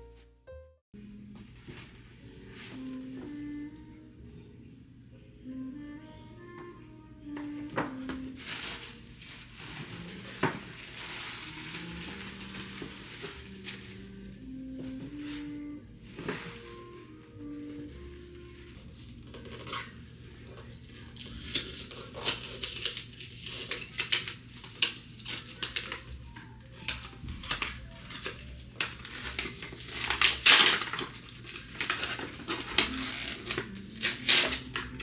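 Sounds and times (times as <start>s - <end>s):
packaging rustling scrape: 7.9s - 14.2s, 27.4s - 35.0s.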